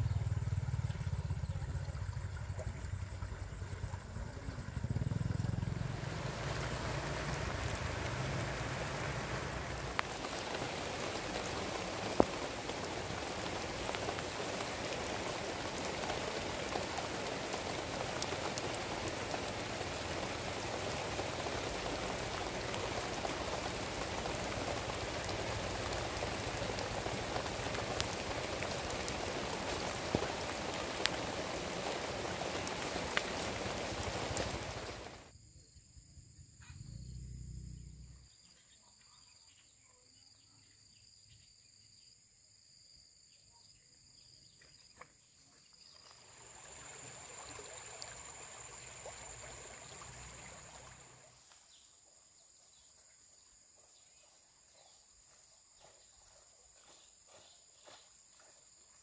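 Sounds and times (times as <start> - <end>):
rushing water: 0.2 - 35.3, 45.9 - 52.2.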